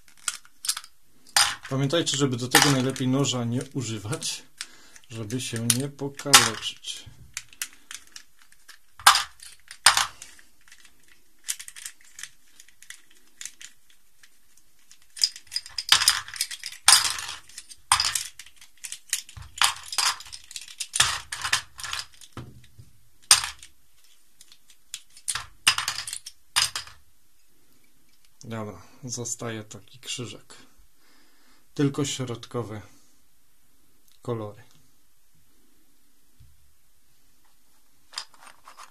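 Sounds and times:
plastic cube pieces clicking: 0.0s - 1.7s, 2.5s - 3.1s, 4.2s - 27.0s
plastic pieces clattering into bowl: 0.0s - 1.8s, 2.5s - 3.1s, 5.4s - 22.4s, 23.2s - 23.7s, 24.4s - 27.0s, 38.1s - 38.9s.

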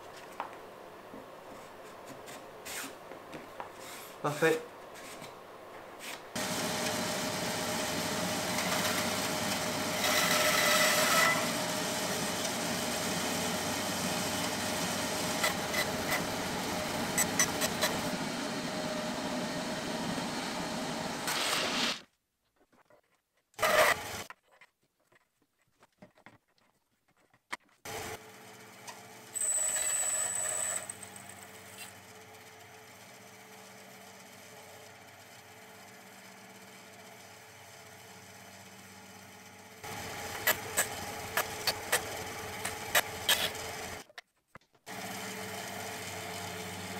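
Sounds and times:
bandsaw cutting wood: 6.4s - 18.2s, 40.0s - 44.0s.

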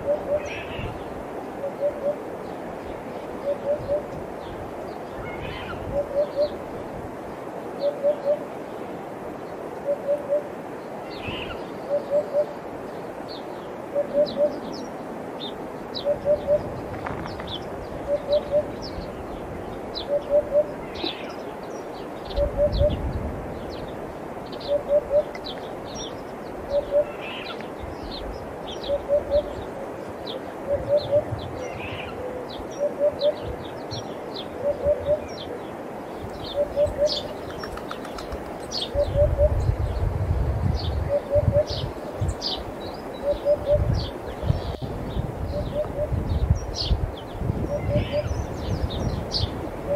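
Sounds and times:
sparrows chirping: 0.0s - 6.6s, 10.8s - 49.6s
hoopoe hooting: 18.0s - 18.8s, 36.5s - 37.3s.

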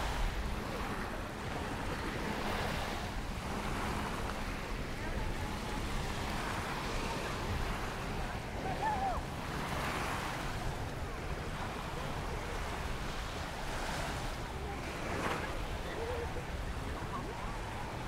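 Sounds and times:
surf washing onto beach: 0.0s - 18.0s.

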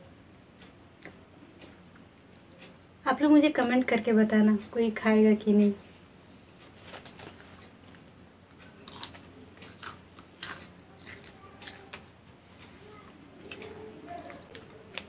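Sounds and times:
popcorn chewing crunches: 6.6s - 12.2s.

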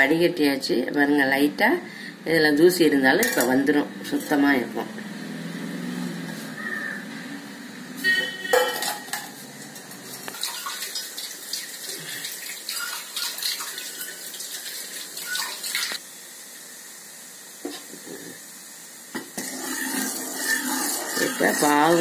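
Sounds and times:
syrup boiling and bubbling: 19.2s - 22.0s.

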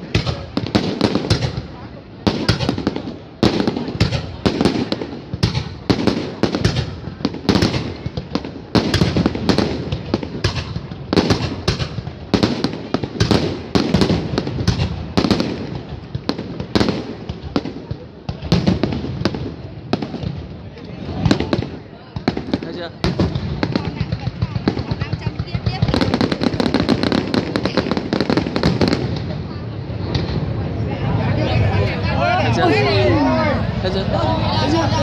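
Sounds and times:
fireworks bangs and crackling: 0.0s - 31.9s.

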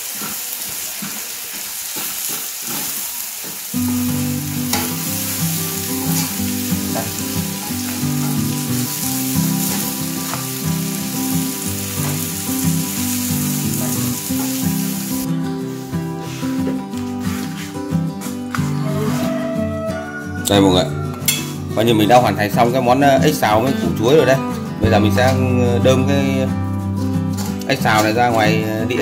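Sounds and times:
utensils clicking against pan: 0.0s - 10.6s
food sizzling in a wok: 0.0s - 17.7s
background music with low notes: 3.8s - 29.0s.

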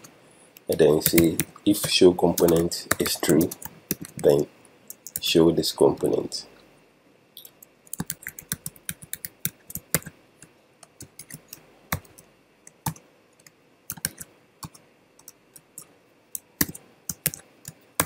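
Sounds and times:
typing on computer keyboard: 1.0s - 4.3s, 7.4s - 10.1s, 10.9s - 12.2s, 12.8s - 18.0s.

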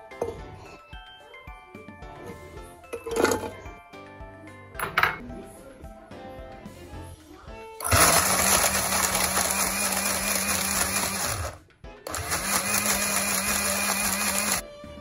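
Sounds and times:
blender motor running: 7.8s - 14.6s.

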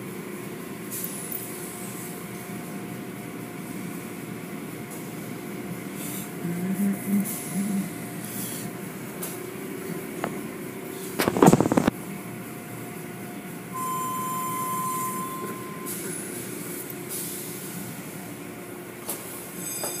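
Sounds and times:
car wash mechanical rumble: 0.0s - 19.8s
high-pitched tone: 13.8s - 16.0s.

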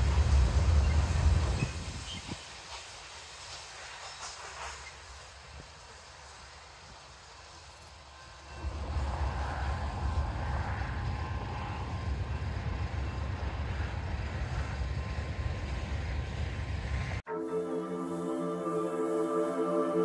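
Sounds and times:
freight train wheels rumbling: 0.0s - 17.2s.

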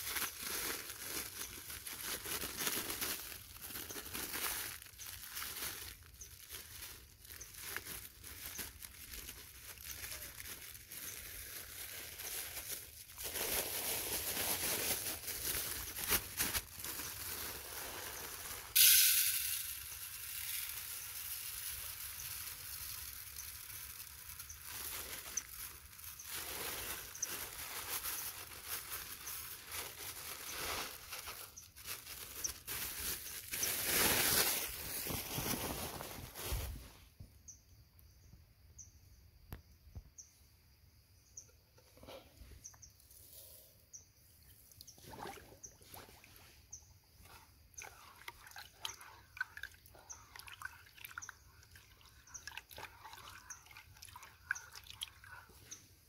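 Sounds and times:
rustling and crinkling handling: 0.0s - 37.3s.

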